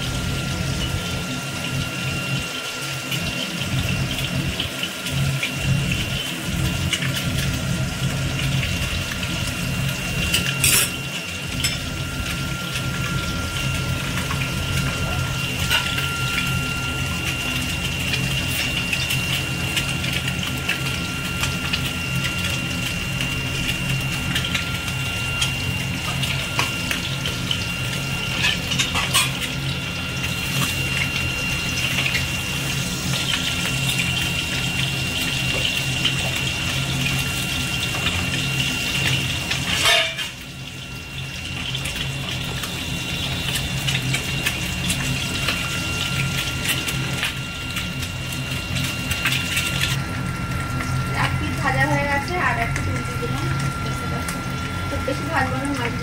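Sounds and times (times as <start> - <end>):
fish sizzling in oil: 0.0 - 56.0.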